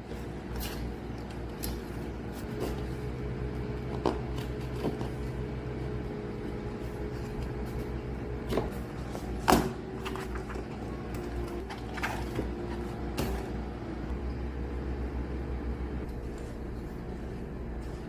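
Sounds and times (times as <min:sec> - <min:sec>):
low hum: 0:00.0 - 0:18.0.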